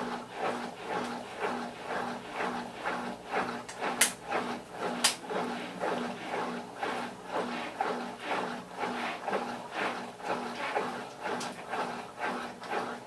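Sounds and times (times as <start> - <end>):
washing machine agitating: 0.0 - 13.0.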